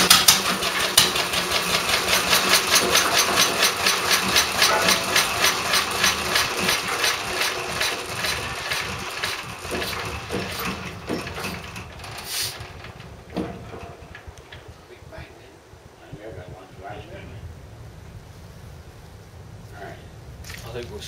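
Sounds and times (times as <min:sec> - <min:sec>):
petrol engine running down: 0:00.0 - 0:14.7.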